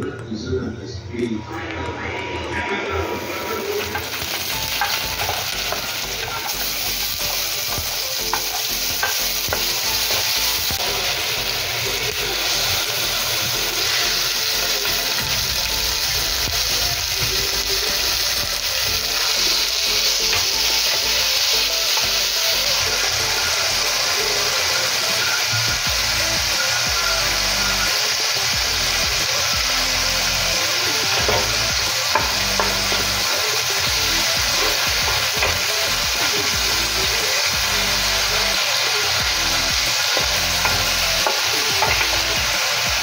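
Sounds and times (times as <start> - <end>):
meat sizzling in a pan: 3.0 - 43.0.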